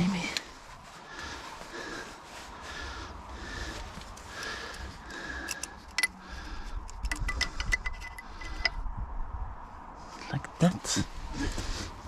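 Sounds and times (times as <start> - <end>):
wrench clicking on metal fittings: 5.4 - 8.8.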